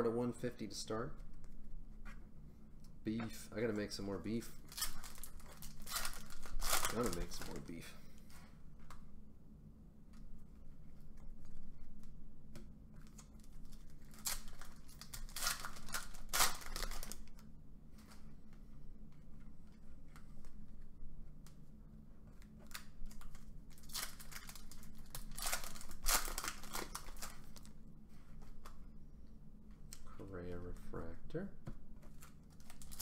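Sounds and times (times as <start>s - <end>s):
cards rustling: 4.3s - 7.9s, 13.0s - 17.3s, 22.6s - 27.7s
wrapper crinkling and tearing: 4.6s - 7.8s, 13.1s - 17.4s, 22.7s - 27.7s, 32.2s - 33.0s.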